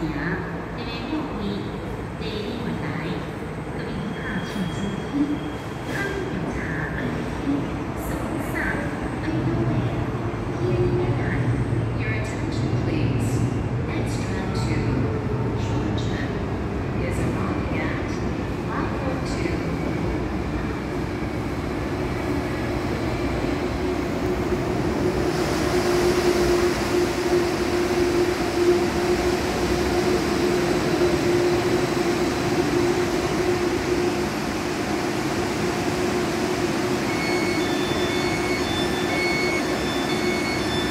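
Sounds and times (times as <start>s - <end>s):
tram electric hum and rumble: 0.0s - 40.9s
high beeping: 36.9s - 40.9s.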